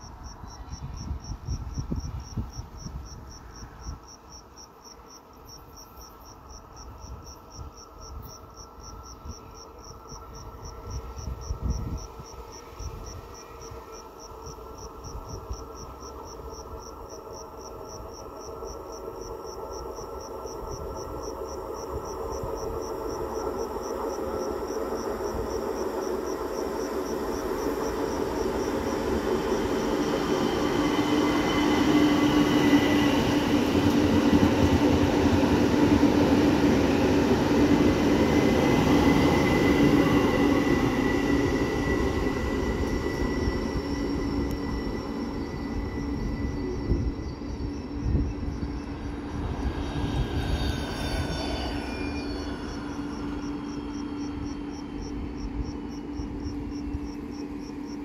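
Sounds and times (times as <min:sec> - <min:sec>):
cricket chirping: 0:00.0 - 0:58.0
wind on microphone: 0:00.5 - 0:04.0, 0:10.2 - 0:13.3, 0:31.5 - 0:51.8
electric train rolling: 0:06.4 - 0:58.0.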